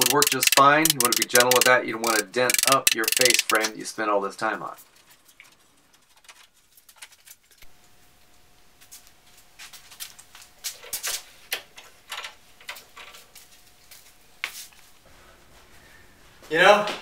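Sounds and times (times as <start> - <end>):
bar clamps ratcheting clicks: 0.0 - 3.7.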